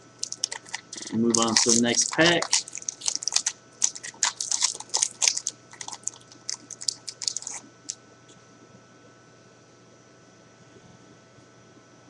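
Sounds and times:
wrapper being torn and crinkled: 0:00.0 - 0:08.0.

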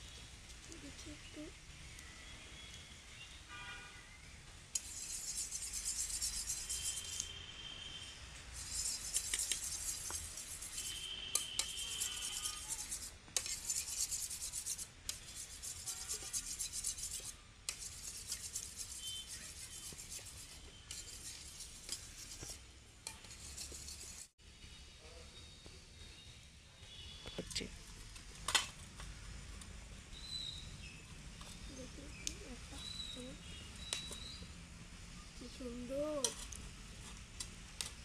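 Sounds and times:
spoon beating eggs in steel bowl: 0:08.6 - 0:24.3.

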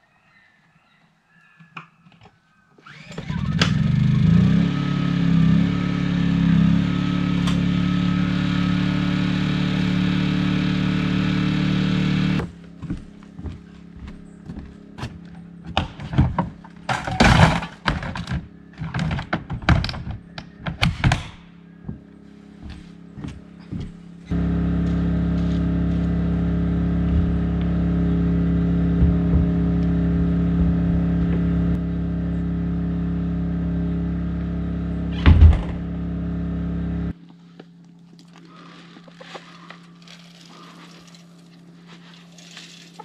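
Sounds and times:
steady low hum: 0:12.0 - 0:20.3, 0:21.3 - 0:43.0
footsteps on wooden deck: 0:12.4 - 0:16.7, 0:21.8 - 0:26.2, 0:27.0 - 0:27.7, 0:28.9 - 0:29.9, 0:30.5 - 0:31.5
loud thump: 0:35.1 - 0:35.9.

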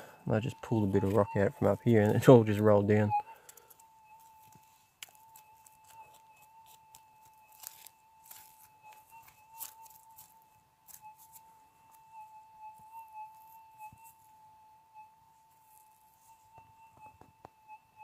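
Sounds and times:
high electronic tone: 0:00.0 - 0:18.0
hands scraping through gravel: 0:00.3 - 0:10.3.

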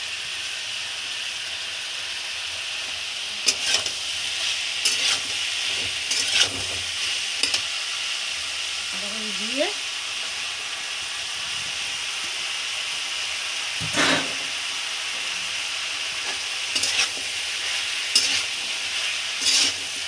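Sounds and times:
oil sizzling in a pan: 0:00.0 - 0:20.0
metal spatula scraping a pan: 0:03.4 - 0:07.6, 0:13.8 - 0:14.5, 0:16.2 - 0:20.0
cabbage rustling into pan: 0:03.5 - 0:07.7, 0:16.2 - 0:20.0.

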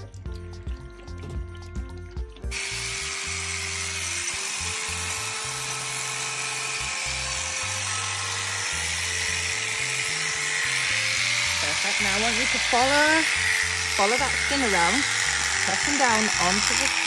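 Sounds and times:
background music: 0:00.0 - 0:17.0
electric shears cutting fleece: 0:02.5 - 0:17.0.

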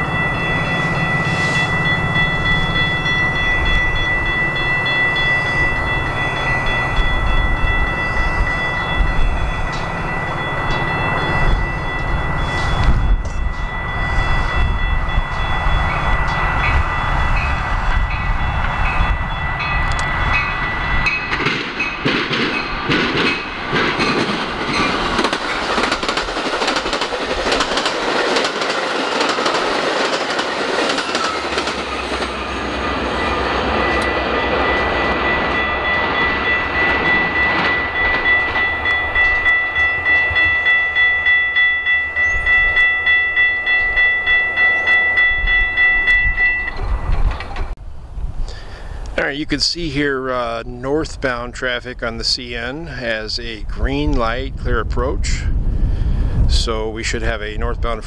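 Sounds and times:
crossing warning bell ringing: 0:00.0 - 0:47.8
diesel locomotive running: 0:00.0 - 0:56.5
train wheels clicking over rail joints: 0:19.8 - 0:41.0, 0:44.6 - 0:47.8.

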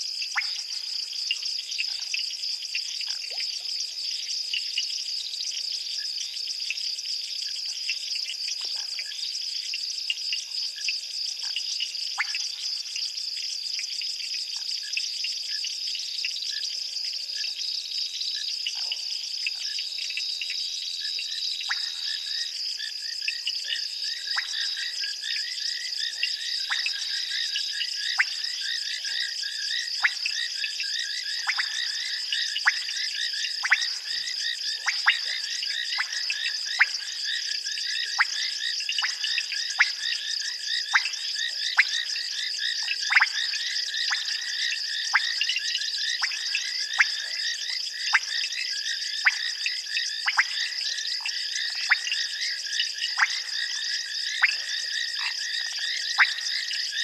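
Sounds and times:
frog calls: 0:21.3 - 0:57.0.

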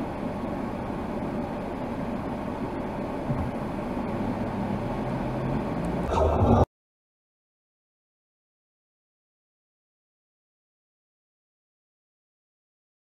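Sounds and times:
car engine idling: 0:00.0 - 0:06.6
cross traffic passing: 0:01.8 - 0:06.7.

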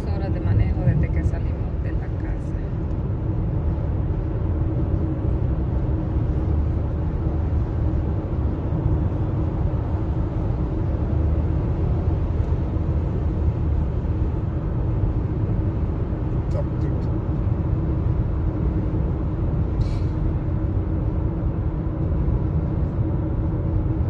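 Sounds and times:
car engine hum: 0:00.0 - 0:24.0.

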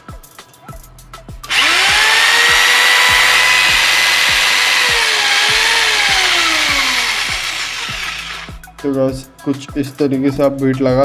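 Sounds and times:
drill motor whining: 0:01.5 - 0:08.6.

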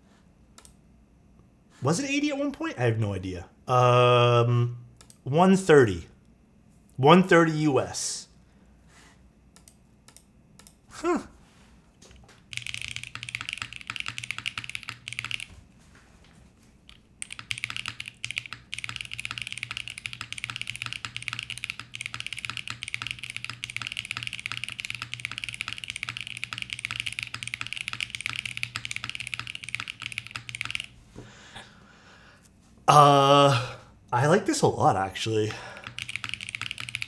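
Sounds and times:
mechanical keyboard typing: 0:12.5 - 0:15.6, 0:16.8 - 0:31.0, 0:35.7 - 0:37.0.

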